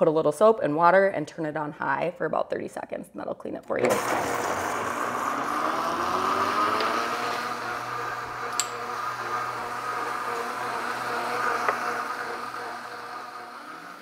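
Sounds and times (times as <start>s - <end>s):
blender motor whirring: 3.8s - 14.0s.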